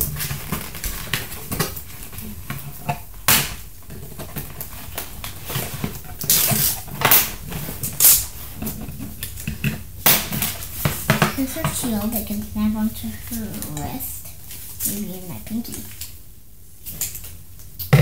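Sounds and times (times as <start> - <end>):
plastic tray crinkling and knocking: 0.0 - 12.6.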